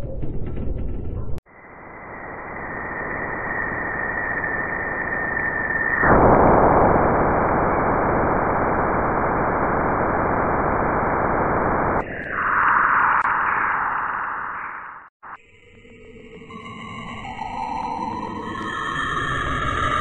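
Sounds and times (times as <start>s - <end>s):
high whistle: 1.8s - 6.9s.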